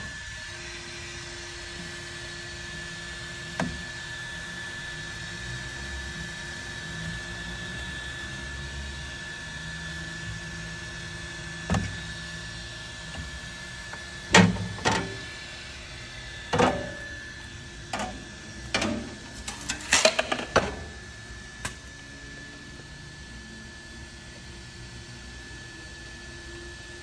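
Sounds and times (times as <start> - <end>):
thin high whine: 8.5 - 26.8
steady hum: 8.8 - 25.3.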